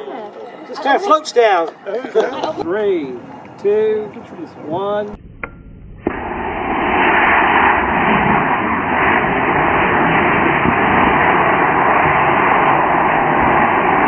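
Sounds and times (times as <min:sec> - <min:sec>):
model rocket motor igniting: 0:06.0 - 0:14.0
loud rushing hiss of rocket: 0:06.1 - 0:14.0.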